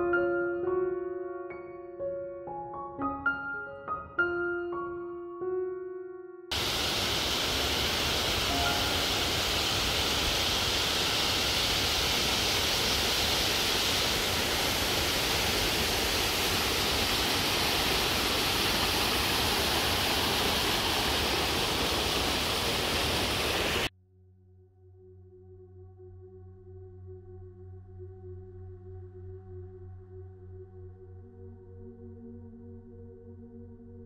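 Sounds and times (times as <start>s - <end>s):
creek water rushing over rocks: 6.5s - 23.9s.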